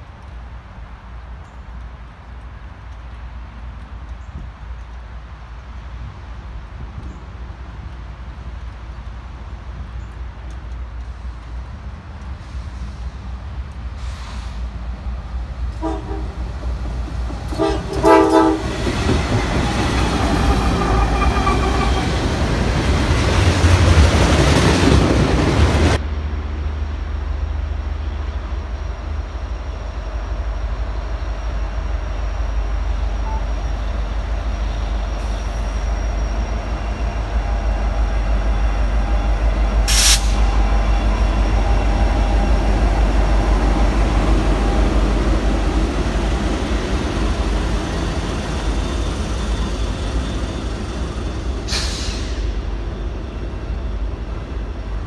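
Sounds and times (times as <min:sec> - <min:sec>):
wheels rolling on rail: 0:00.0 - 0:55.0
train horn blasts: 0:15.7 - 0:16.5, 0:17.5 - 0:18.9, 0:33.2 - 0:33.6.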